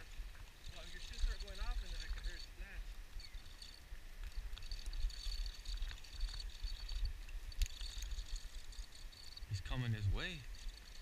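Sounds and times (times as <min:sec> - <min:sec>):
crickets chirping: 0:00.0 - 0:11.0.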